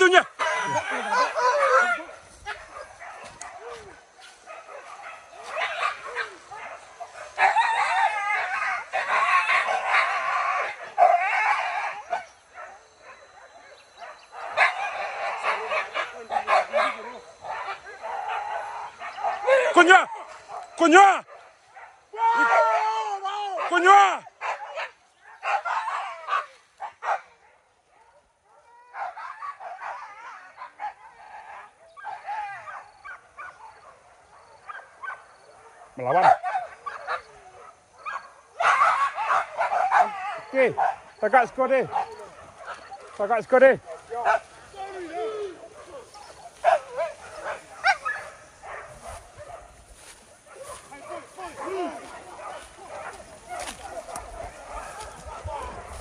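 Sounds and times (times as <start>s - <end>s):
dogs yelping and baying: 0.0s - 22.8s, 23.6s - 56.0s.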